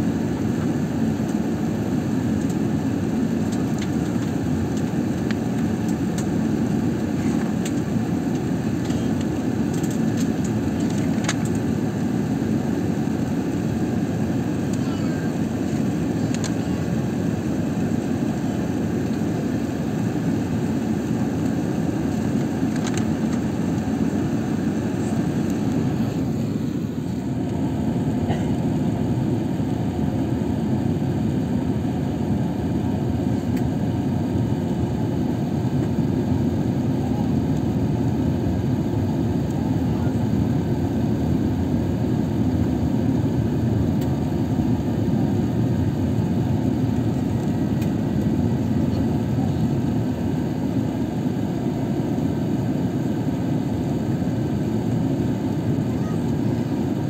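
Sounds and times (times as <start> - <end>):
jet engines droning: 0.0 - 57.0.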